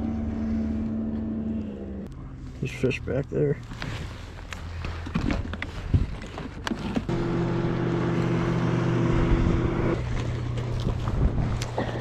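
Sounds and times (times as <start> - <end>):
boat motor humming: 0.0 - 2.6, 7.0 - 12.0.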